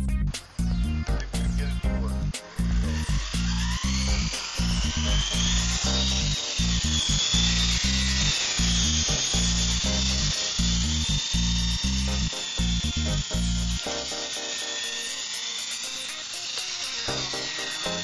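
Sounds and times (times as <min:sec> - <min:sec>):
music with bass beat: 0:00.0 - 0:14.2
toy helicopter motor whine: 0:00.0 - 0:18.0.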